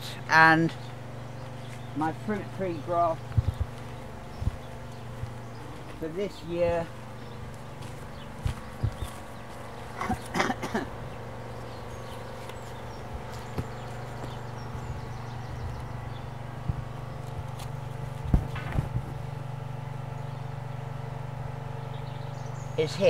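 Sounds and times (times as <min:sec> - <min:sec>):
steady low hum: 0:00.0 - 0:23.0
footsteps on ground: 0:00.7 - 0:16.0, 0:16.6 - 0:19.4.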